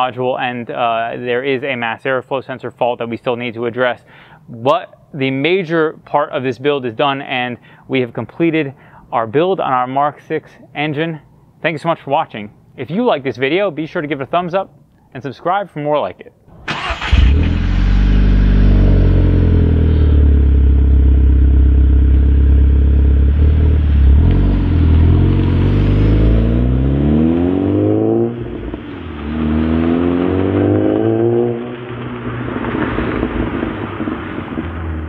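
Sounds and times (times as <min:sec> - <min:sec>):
car engine revving and pulling away: 0:16.5 - 0:35.0.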